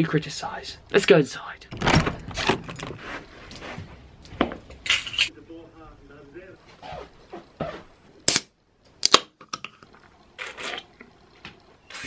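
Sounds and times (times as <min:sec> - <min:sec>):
can opening crack: 0:08.3 - 0:10.8
person sipping: 0:09.6 - 0:11.2.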